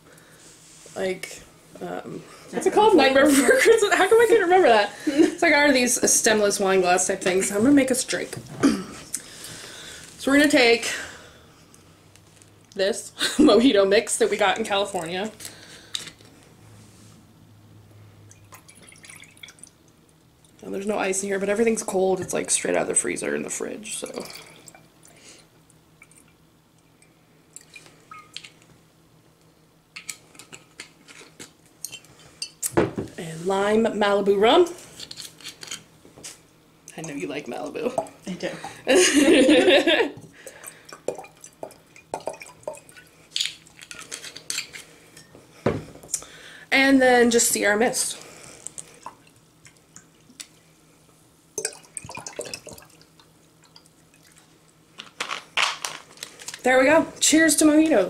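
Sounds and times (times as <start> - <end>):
liquid trickling into glass: 18.3 - 19.8, 51.6 - 54.4
fizzy ticks and drips: 40.4 - 43.1, 51.6 - 54.8.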